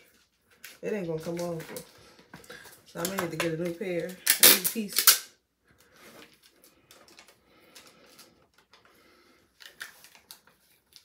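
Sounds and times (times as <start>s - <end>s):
small items handled rustling: 0.0s - 5.0s.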